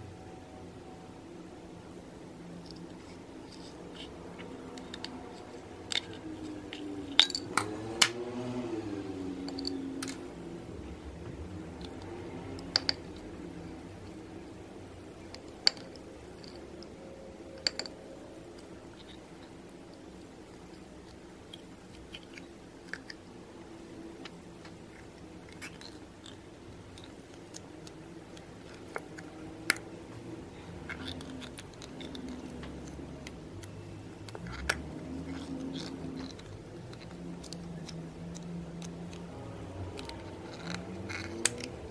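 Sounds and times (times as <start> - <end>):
steady low hum: 0.0 - 41.9.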